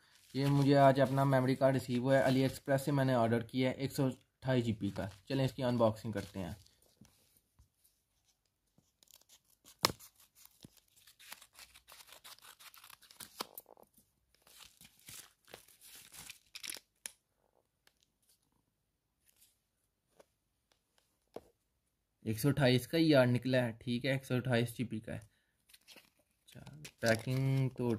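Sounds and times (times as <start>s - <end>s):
scissors cutting envelope: 9.0s - 13.7s
packaging crinkling: 14.4s - 17.0s, 25.7s - 27.9s.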